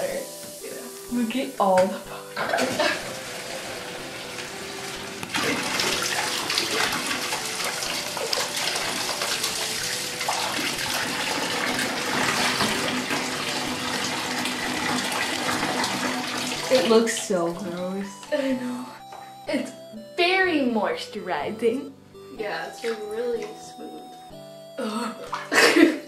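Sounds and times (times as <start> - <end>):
tap water splashing into bathtub: 0.0 - 18.4, 22.7 - 24.1, 25.2 - 25.8.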